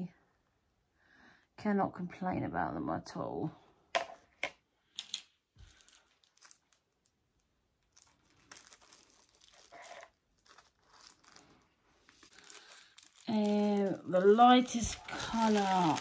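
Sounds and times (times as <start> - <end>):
plastic packets crinkling: 5.6 - 16.0.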